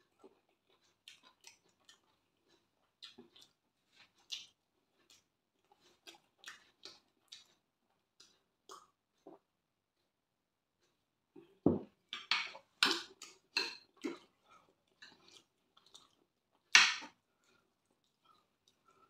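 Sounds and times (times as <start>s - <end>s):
chewing crunches: 0.0s - 9.4s.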